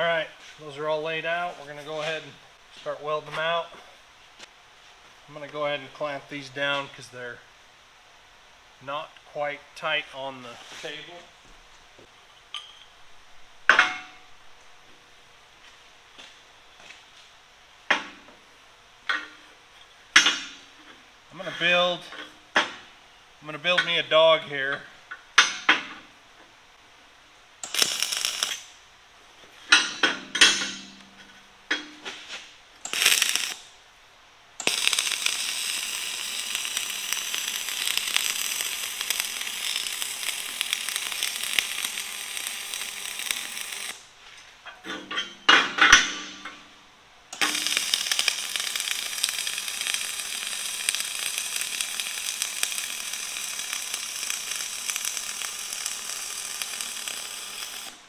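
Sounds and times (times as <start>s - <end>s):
welding arc crackling: 27.6s - 28.8s, 31.7s - 33.8s, 34.6s - 44.1s, 47.3s - 58.0s
metal clanks on steel frame: 29.6s - 32.2s, 44.6s - 46.7s.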